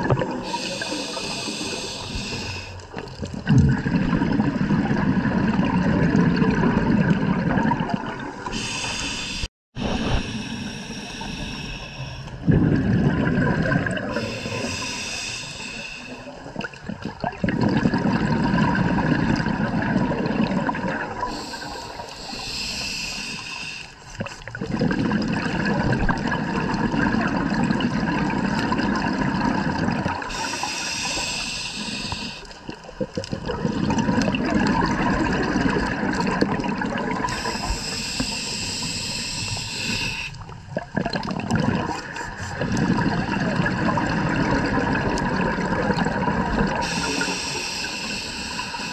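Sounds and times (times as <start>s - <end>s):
exhaled bubbles rushing: 0.0s - 1.3s, 2.9s - 8.8s, 12.4s - 14.8s, 16.4s - 22.0s, 24.2s - 30.6s, 32.6s - 37.8s, 40.4s - 47.2s
regulator inhale hiss: 0.4s - 2.9s, 8.5s - 12.4s, 14.1s - 16.3s, 21.2s - 24.1s, 30.3s - 32.6s, 37.3s - 40.6s, 46.8s - 48.9s.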